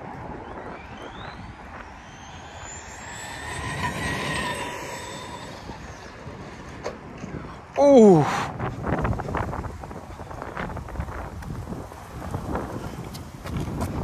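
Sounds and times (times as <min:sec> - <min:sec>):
rc truck electric motor whining: 0:01.0 - 0:06.8.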